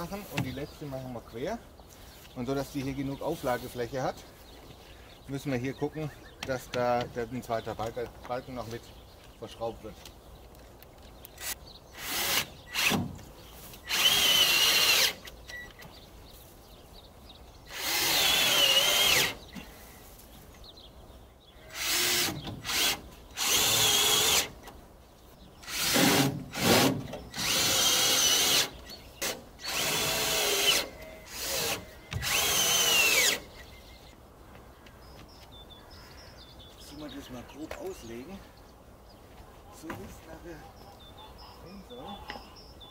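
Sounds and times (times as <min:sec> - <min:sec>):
cordless drill driving screws: 0:11.4 - 0:13.1, 0:13.8 - 0:15.6, 0:17.7 - 0:19.4, 0:21.7 - 0:24.6, 0:25.6 - 0:34.1.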